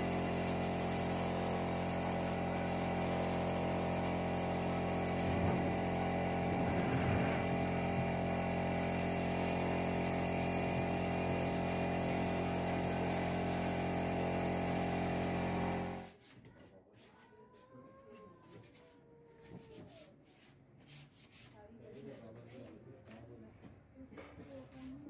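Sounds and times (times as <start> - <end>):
spray gun hiss: 0.0 - 6.5, 7.3 - 16.1
air compressor humming: 0.0 - 16.1.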